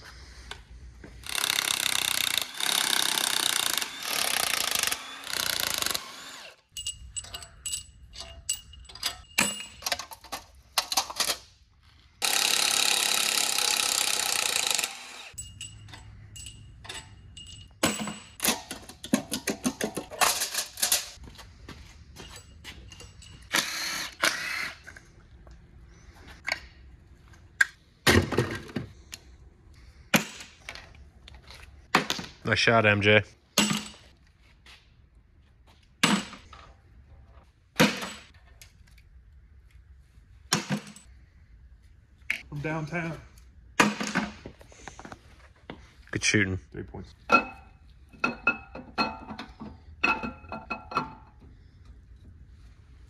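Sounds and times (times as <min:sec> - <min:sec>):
hand ratchet clicking: 0:01.2 - 0:06.1
impact wrench bursts: 0:01.2 - 0:06.6, 0:12.2 - 0:15.4, 0:23.5 - 0:24.9
metal tools clinking: 0:06.7 - 0:11.5, 0:15.3 - 0:21.2, 0:22.1 - 0:23.6.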